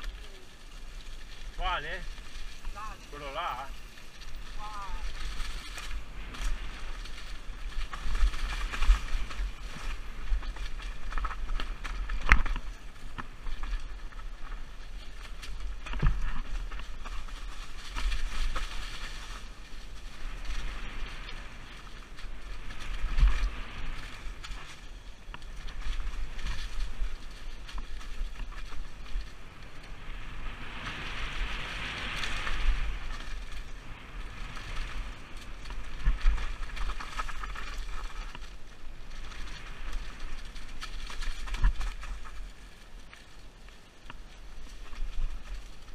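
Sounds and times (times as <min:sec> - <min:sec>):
wind buffeting microphone: 0:00.0 - 0:43.0
bike rattling: 0:00.0 - 0:45.9
bike tyres rolling over leaves: 0:00.0 - 0:45.9.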